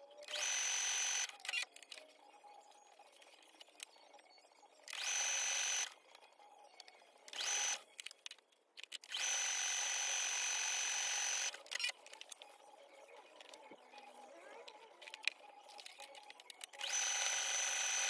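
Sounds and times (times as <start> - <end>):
electric sewing machine stitching: 0.3 - 1.3, 4.9 - 5.9, 7.4 - 7.8, 9.1 - 11.6, 16.8 - 18.0.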